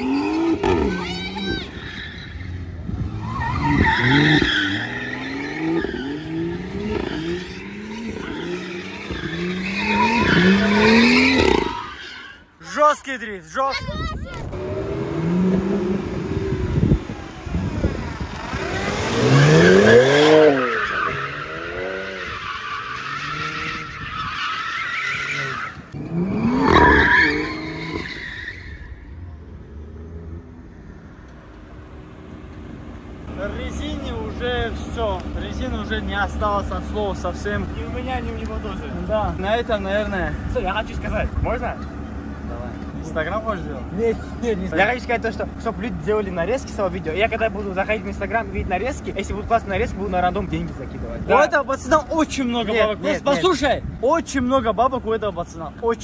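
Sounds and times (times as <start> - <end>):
tyres squealing: 0.0 - 12.9, 18.7 - 29.3
car engines revving: 0.0 - 13.3, 14.3 - 56.0
tyres squealing on asphalt: 0.0 - 56.0.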